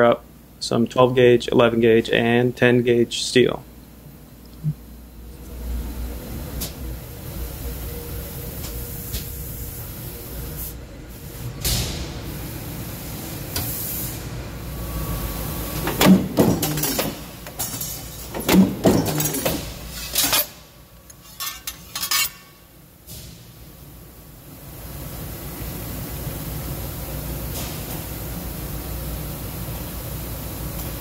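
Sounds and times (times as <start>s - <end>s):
machine hum: 0.0s - 21.8s
metallic clanks and bangs: 15.9s - 20.6s.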